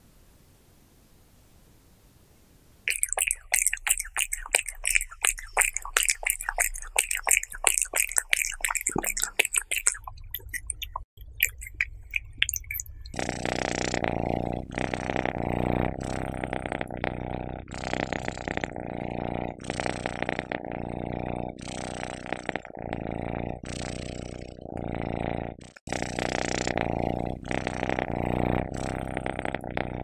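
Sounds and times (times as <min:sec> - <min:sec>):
cat chewing and licking: 0:02.9 - 0:16.4
cat purring: 0:02.9 - 0:30.0.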